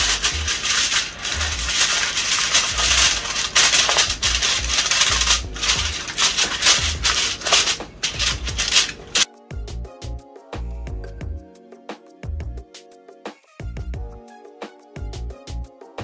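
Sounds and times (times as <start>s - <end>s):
aluminium foil crinkling: 0.0s - 9.3s
music: 0.0s - 16.0s.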